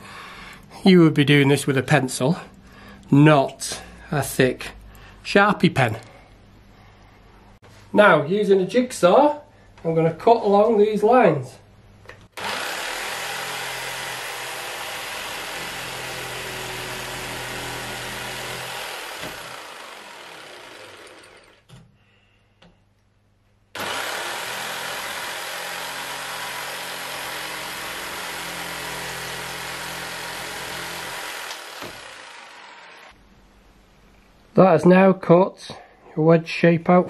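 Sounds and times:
jigsaw cutting floorboard: 0:12.4 - 0:21.7, 0:23.8 - 0:33.2.

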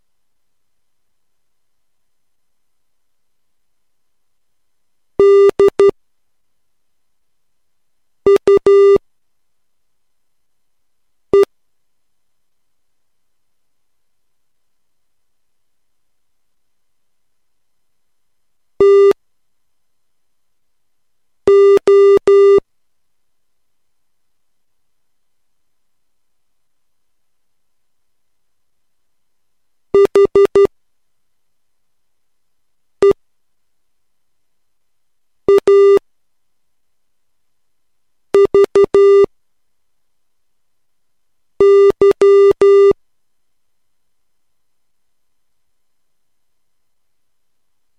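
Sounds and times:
morse code beeps: 0:05.2 - 0:05.9, 0:08.3 - 0:09.0, 0:18.8 - 0:19.2, 0:21.5 - 0:22.6, 0:30.0 - 0:30.7, 0:35.5 - 0:36.0, 0:38.4 - 0:39.3, 0:41.6 - 0:43.0.

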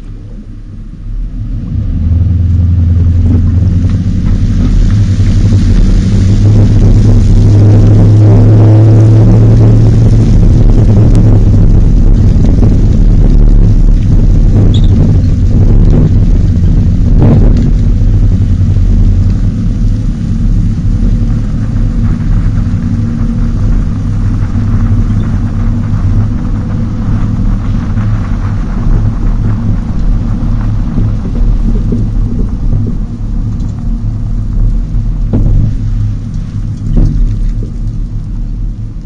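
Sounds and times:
engine and road noise rumble: 0:00.0 - 0:39.0
wind buffeting microphone: 0:00.0 - 0:39.0
sharp knocks: 0:35.3 - 0:35.8.

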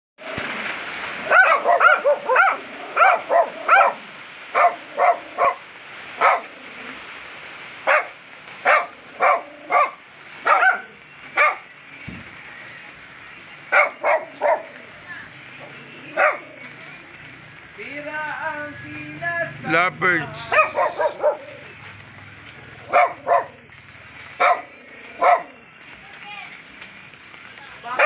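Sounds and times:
small dogs barking: 0:01.2 - 0:06.6, 0:07.8 - 0:11.7, 0:13.7 - 0:14.8, 0:15.6 - 0:16.8, 0:20.4 - 0:21.8, 0:22.8 - 0:23.7, 0:24.3 - 0:25.6.

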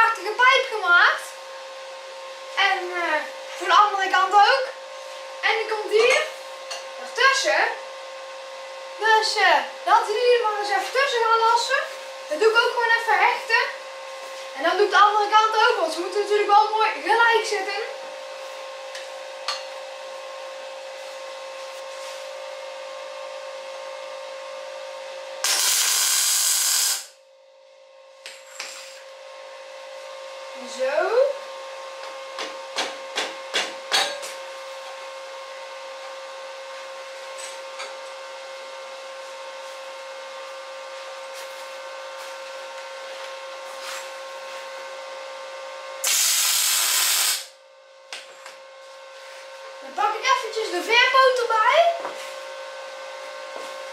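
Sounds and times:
respirator blower hum: 0:00.0 - 0:53.9
arc welder crackling hiss: 0:25.4 - 0:27.2, 0:46.0 - 0:47.6.

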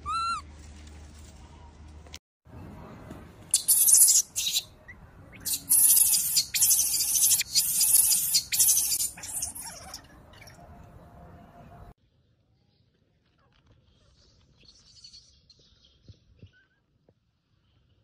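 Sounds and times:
baby monkey screeching: 0:00.0 - 0:00.4, 0:03.5 - 0:04.7, 0:05.3 - 0:10.6.

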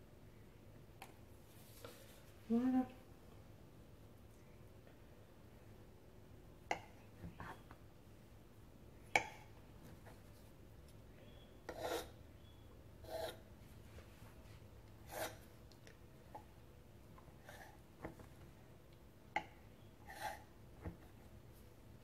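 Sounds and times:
knife scraping table: 0:11.7 - 0:12.2, 0:13.0 - 0:13.4, 0:15.1 - 0:15.5, 0:20.1 - 0:20.5.

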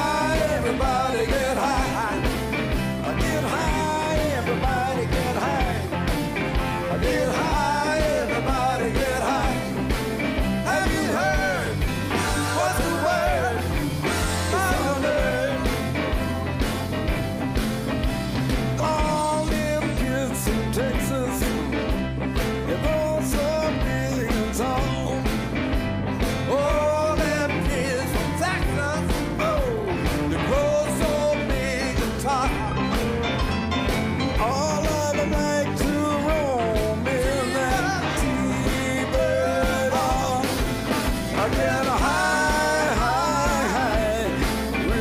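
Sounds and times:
rock music: 0:00.0 - 0:45.0.

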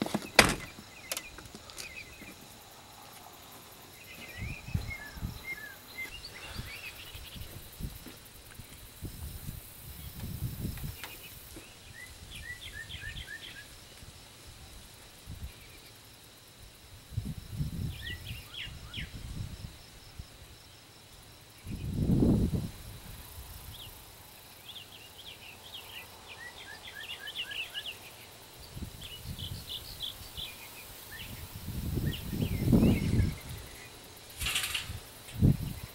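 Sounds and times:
birds chirping: 0:00.0 - 0:07.8, 0:10.0 - 0:13.8, 0:24.6 - 0:35.9
wind rumbling on microphone: 0:04.0 - 0:13.3, 0:14.0 - 0:15.7, 0:16.9 - 0:20.4, 0:21.6 - 0:24.0, 0:28.6 - 0:35.9.

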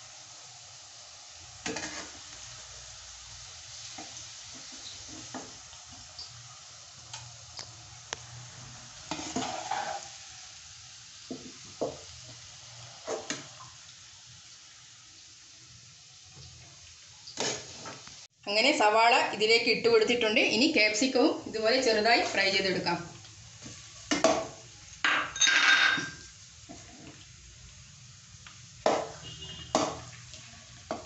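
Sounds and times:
onion sizzling in hot oil: 0:00.0 - 0:31.0
metal spoon clinking and scraping: 0:25.2 - 0:26.3.

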